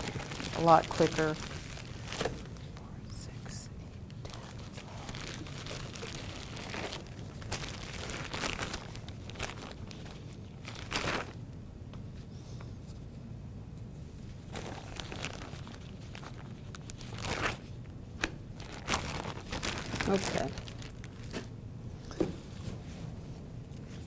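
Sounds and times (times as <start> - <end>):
plastic bag crinkling: 0.0 - 2.6, 4.3 - 11.4, 14.5 - 17.8, 18.6 - 21.5.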